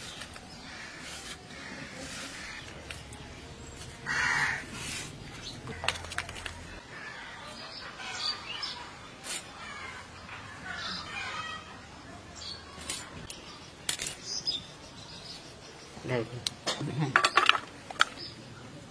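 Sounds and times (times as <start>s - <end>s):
birds calling: 0.0s - 9.0s.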